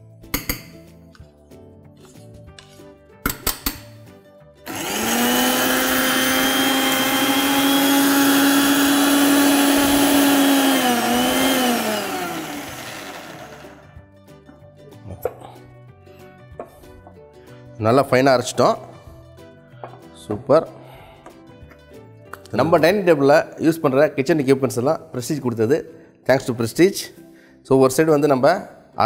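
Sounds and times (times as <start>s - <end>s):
mixer grinder motor whining: 4.7s - 14.0s.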